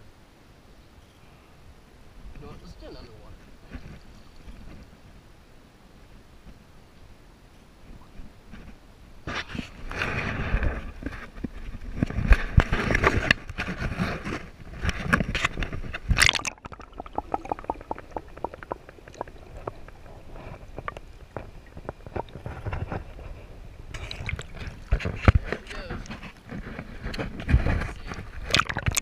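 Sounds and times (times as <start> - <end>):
muffled underwater clicks and knocks: 9.3 - 29.0
water splashing and sloshing: 9.3 - 29.0.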